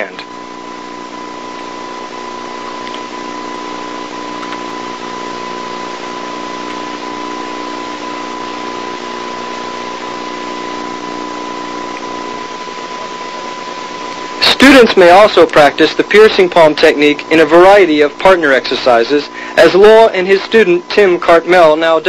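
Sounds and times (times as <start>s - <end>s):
constant high whine: 0.0s - 22.0s
videotape hiss: 0.0s - 22.0s.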